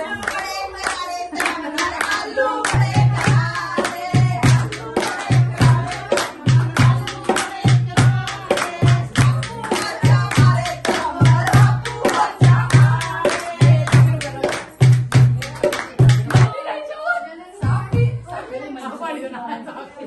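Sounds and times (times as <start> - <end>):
hand clapping: 0.0 - 16.5
women singing together: 0.0 - 20.0
hand drum beating: 2.7 - 16.5.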